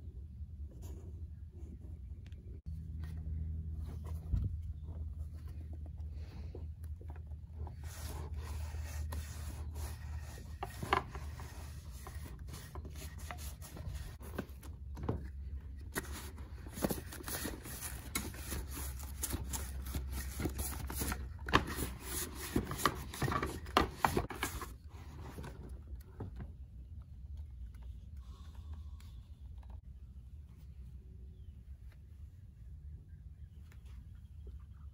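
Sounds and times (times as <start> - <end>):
lint roller rubbing: 7.5 - 14.2.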